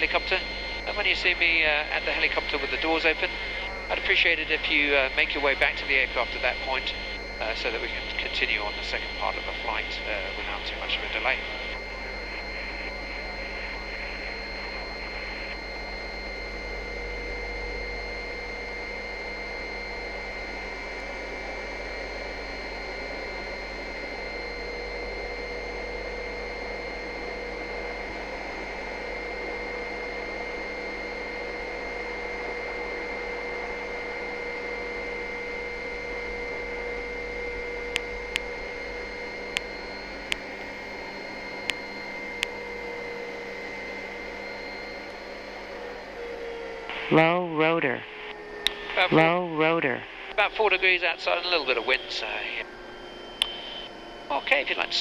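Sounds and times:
helicopter engine and rotor: 0.0 - 55.0.

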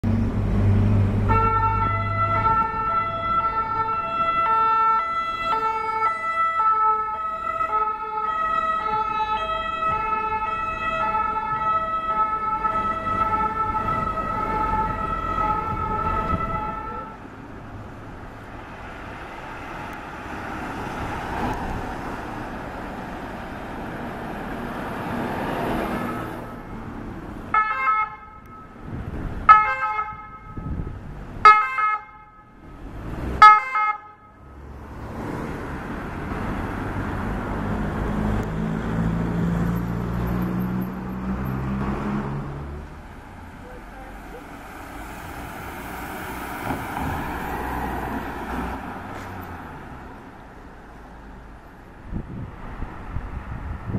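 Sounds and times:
traffic noise: 0.0 - 53.9
ambulance siren alternating tones: 1.2 - 17.3, 27.5 - 32.7, 33.4 - 34.6.

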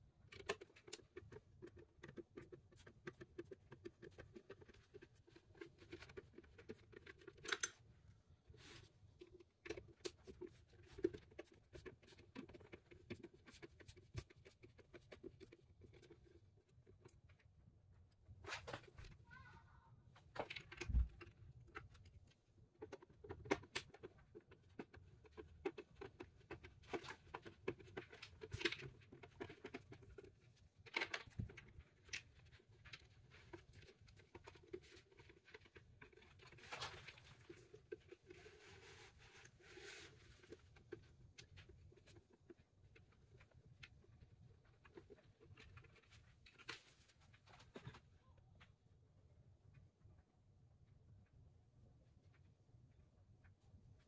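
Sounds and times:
small clicks and taps on plastic: 0.0 - 7.9, 20.3 - 38.4.

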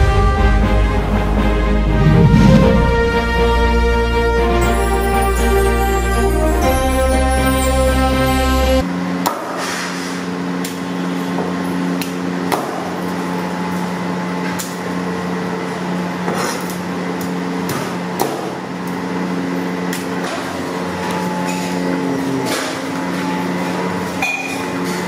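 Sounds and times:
steady low hum: 0.9 - 5.0.

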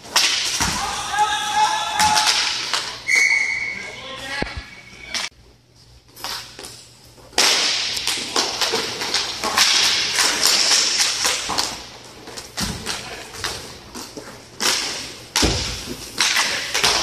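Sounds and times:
sticks and puck clacking: 0.0 - 3.2, 6.2 - 17.0
skate wheels rolling and scraping: 7.3 - 17.0.

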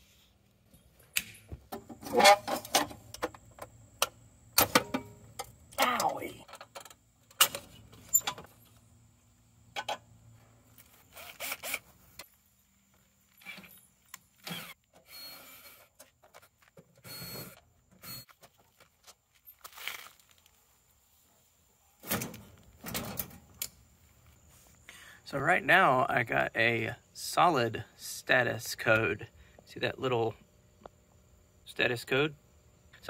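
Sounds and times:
cordless drill whirring: 11.1 - 11.8.

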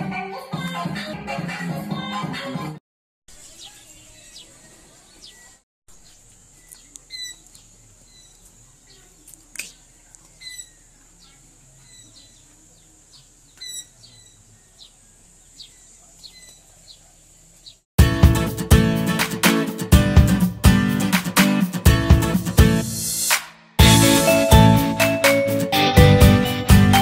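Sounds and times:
birds chirping: 3.4 - 17.8.

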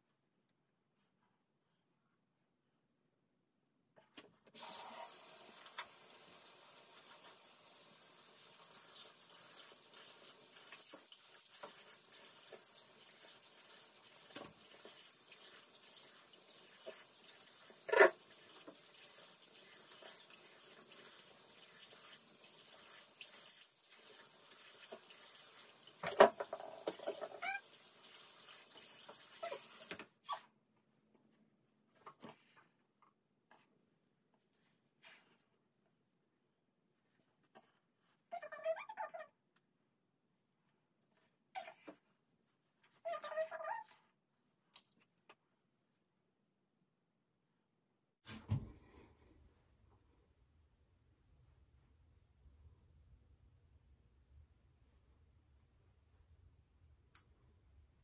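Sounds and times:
sink tap running: 4.6 - 30.1.

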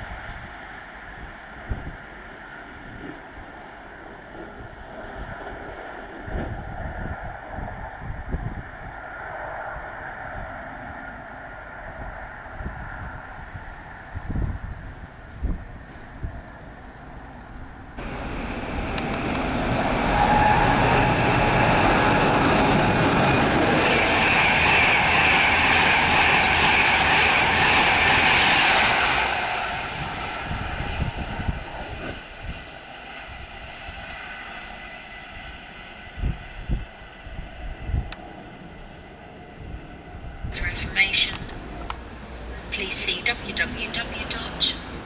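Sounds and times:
train passing at speed: 0.0 - 45.0
high ringing rail tone: 18.0 - 40.9.

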